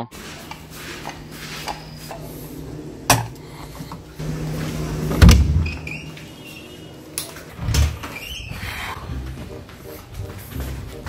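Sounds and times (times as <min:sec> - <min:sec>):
low steady hum: 0:00.0 - 0:08.1.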